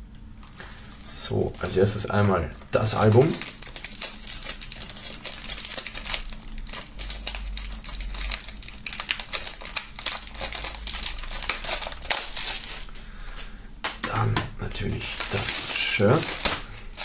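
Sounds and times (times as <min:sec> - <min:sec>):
plastic film crinkling: 0:00.3 - 0:17.0.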